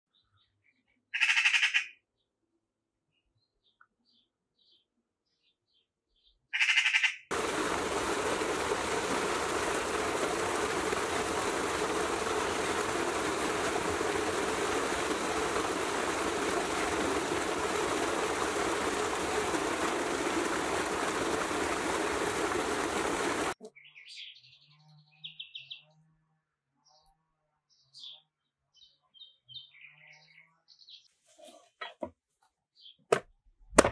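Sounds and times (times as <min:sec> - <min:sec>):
waterfall pouring onto rocks: 0:07.3 - 0:23.6.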